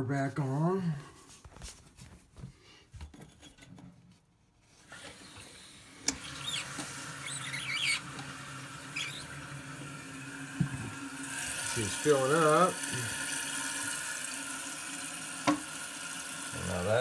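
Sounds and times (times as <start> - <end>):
water running into toilet tank: 4.8 - 17.0
high squeaky chirps: 7.2 - 8.0.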